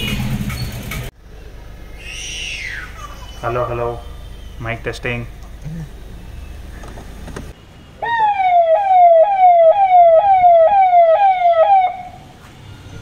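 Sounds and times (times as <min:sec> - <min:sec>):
low steady hum: 0:01.2 - 0:08.1
electronic police siren: 0:08.0 - 0:13.0.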